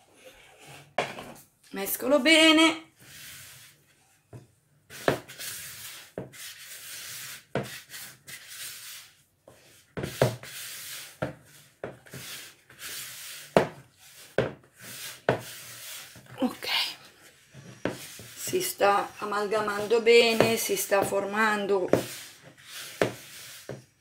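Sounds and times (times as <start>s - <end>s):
spatula scraping dough: 3.0s - 4.0s, 4.9s - 24.0s
spatula knocking plastic bowl: 20.2s - 22.2s.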